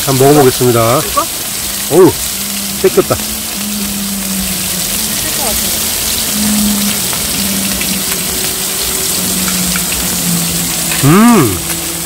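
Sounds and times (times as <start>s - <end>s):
meat sizzling in oil: 0.0s - 12.0s
person humming: 10.8s - 11.8s.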